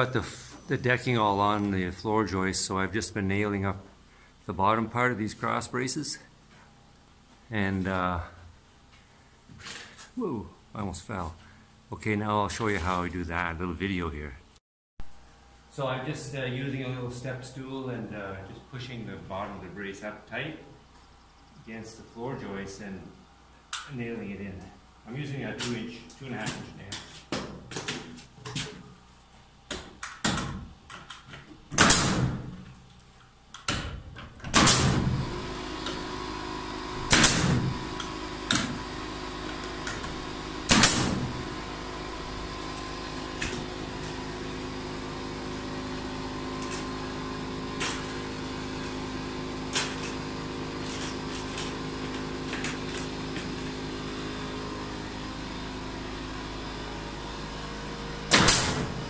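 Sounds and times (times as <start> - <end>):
nail gun shots into wood: 31.7 - 32.6, 33.6 - 35.1, 37.1 - 37.8, 40.7 - 41.3, 58.3 - 59.0
air compressor motor humming: 34.6 - 59.0.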